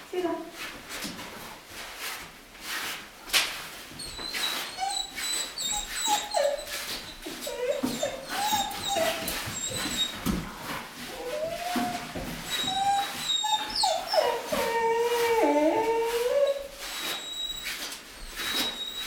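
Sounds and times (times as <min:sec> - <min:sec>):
dog whining: 0:04.0 - 0:19.0.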